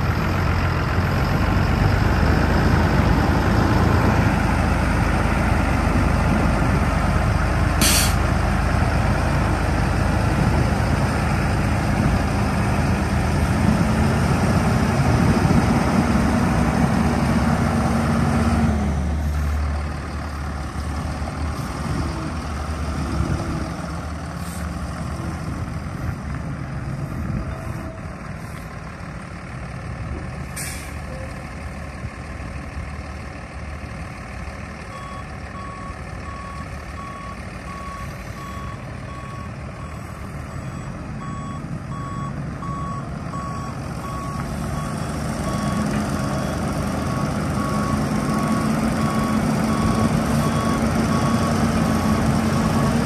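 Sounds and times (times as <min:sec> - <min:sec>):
diesel truck engine idling: 0:00.0 - 0:53.0
short air hiss: 0:07.8 - 0:08.2
reversing alarm beeping: 0:34.9 - 0:53.0.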